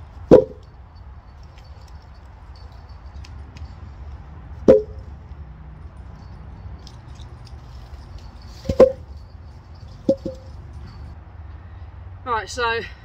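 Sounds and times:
logs knocking together: 0:08.6 - 0:09.1.

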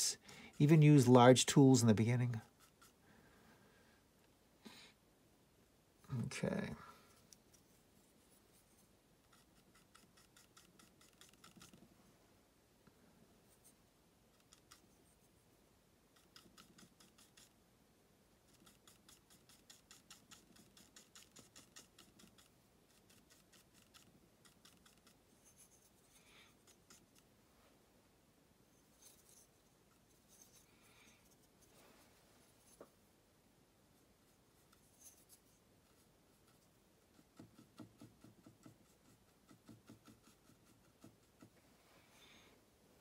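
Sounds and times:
paintbrush scratching on panel: 0:07.6 - 0:11.8, 0:16.2 - 0:17.6, 0:34.3 - 0:41.6.

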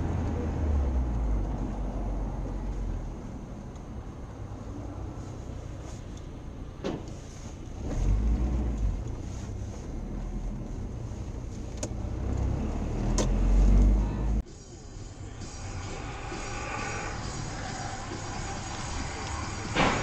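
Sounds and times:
car engine and road rumble: 0:00.0 - 0:20.0.

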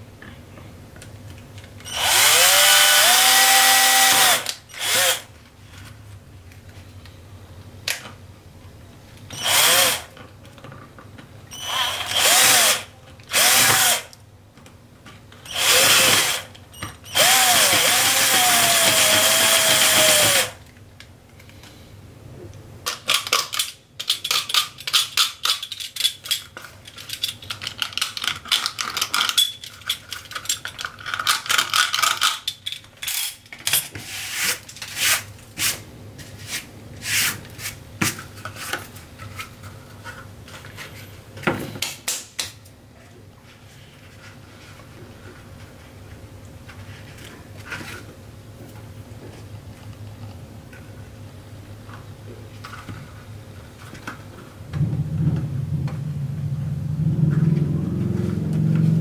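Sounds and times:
cordless drill whining: 0:01.9 - 0:05.3, 0:09.4 - 0:10.1, 0:11.5 - 0:14.1, 0:15.5 - 0:16.5, 0:17.1 - 0:20.6.

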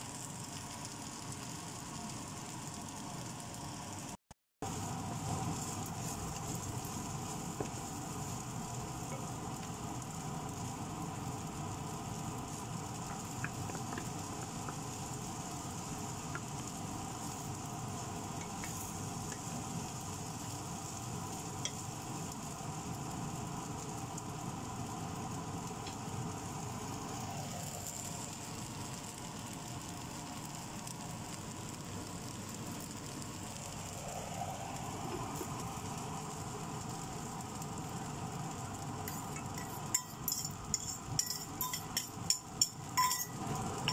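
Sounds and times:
rice sizzling in a wok: 0:00.0 - 0:43.9
steady hum: 0:33.1 - 0:43.9
spatula clicking against pan: 0:39.4 - 0:43.3.

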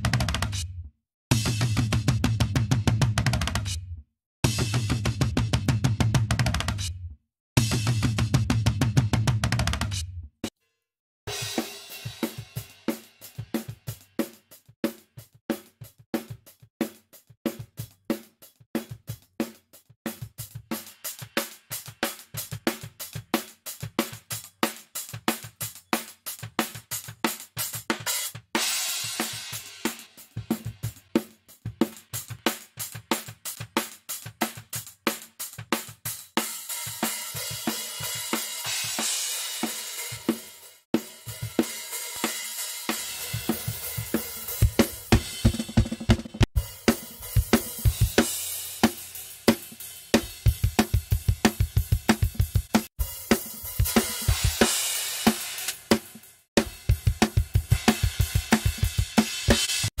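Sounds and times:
metal drum kit playing: 0:36.8 - 1:00.0.

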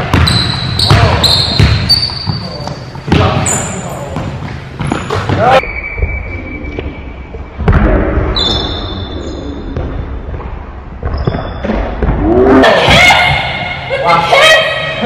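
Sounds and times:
basketball bouncing on wood floor: 0:00.0 - 0:03.5, 0:04.2 - 0:06.1, 0:09.8 - 0:12.3
sneakers squeaking: 0:00.0 - 0:12.2.

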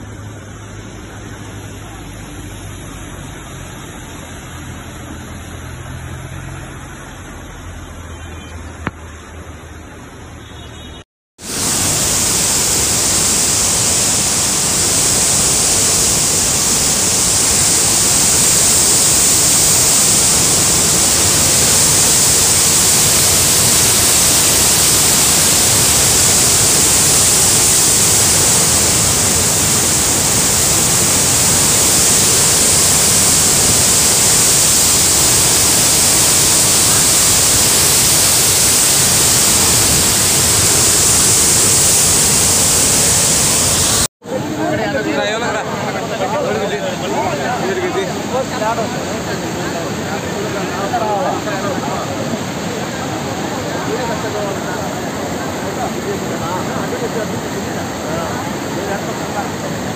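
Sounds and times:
floodwater rushing over rocks: 0:11.4 - 0:44.1.

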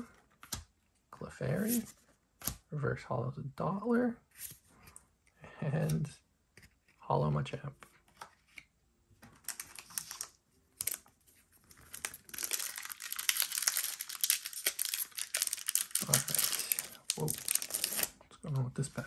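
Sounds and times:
foil wrapper crinkling: 0:09.4 - 0:18.1
foil pack tearing: 0:11.8 - 0:18.1.

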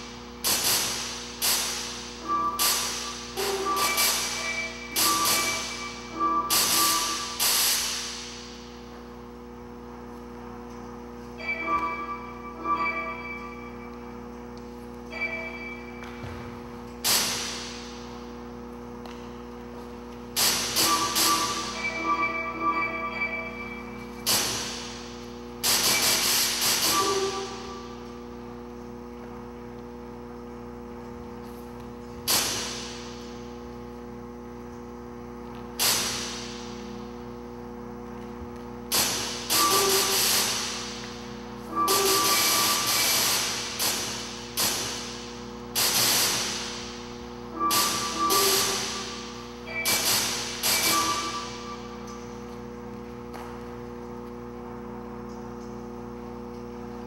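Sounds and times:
electronic noise bursts with ringing tones: 0:00.0 - 0:08.4, 0:11.3 - 0:14.3, 0:15.0 - 0:18.0, 0:20.4 - 0:28.5, 0:38.9 - 0:52.4
steady electronic hum: 0:00.0 - 0:57.0
electronic fluttering burst: 0:25.6 - 0:27.9, 0:41.7 - 0:45.1.

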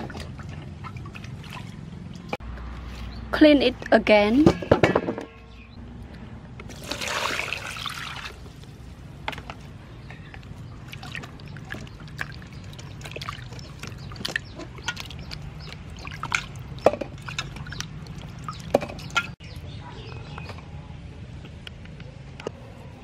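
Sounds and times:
water pouring into metal bowl: 0:06.7 - 0:08.4.

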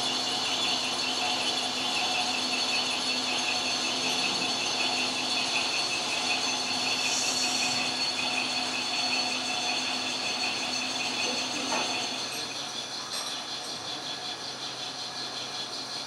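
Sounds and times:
constant machinery noise: 0:00.0 - 0:16.0
high machine whines: 0:00.0 - 0:16.0
fast pulsing tone: 0:01.4 - 0:12.8.

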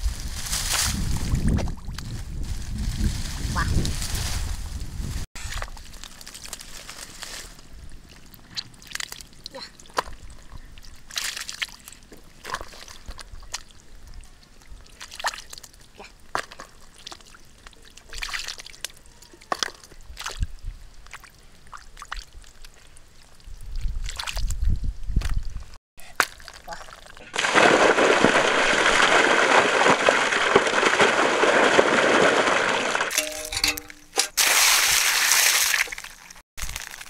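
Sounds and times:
hands splashing in muddy water: 0:26.2 - 0:37.0.

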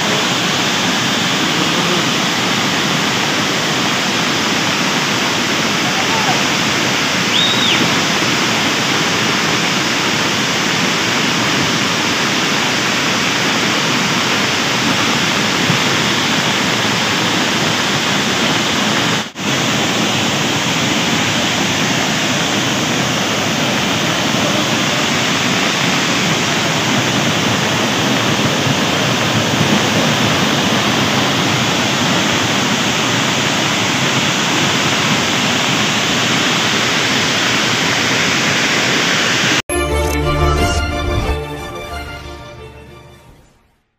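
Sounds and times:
stream rushing over rocks: 0:00.0 - 0:39.6.

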